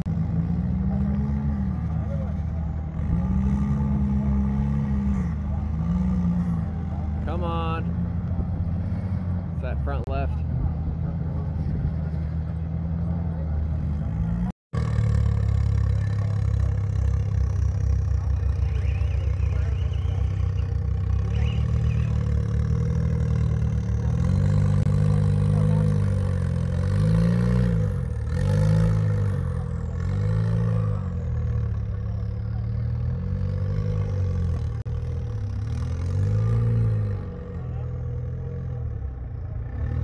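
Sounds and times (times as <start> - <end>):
engine revving: 0.0 - 40.0.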